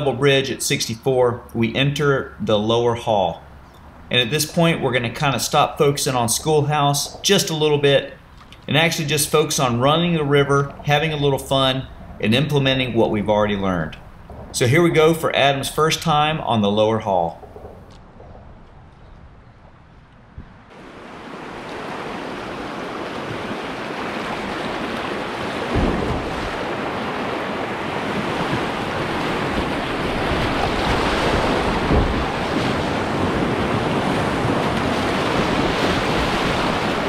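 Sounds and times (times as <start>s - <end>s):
low thumps: 11.9s - 16.6s, 17.2s - 20.8s, 25.5s - 33.7s
wind on microphone: 17.3s - 37.0s
rushing whitewater: 20.7s - 37.0s.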